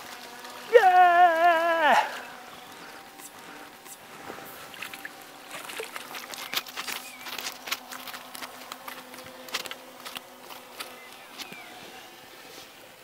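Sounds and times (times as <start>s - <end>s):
water dripping and pattering: 0.0s - 11.6s
fish flapping on grass: 3.0s - 11.8s
fish splashing in a net: 4.6s - 11.5s.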